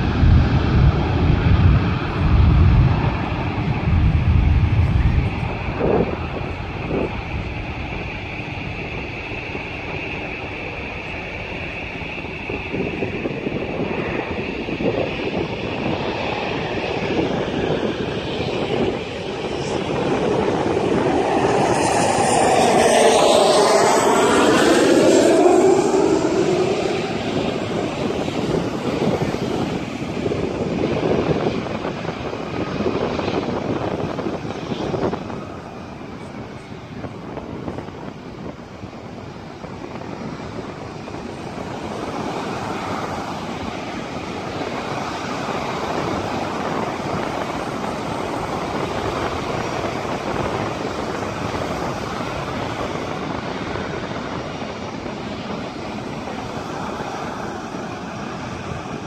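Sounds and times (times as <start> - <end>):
steady low rumble: 0.0 - 42.2
aircraft engine passing overhead: 0.0 - 59.0.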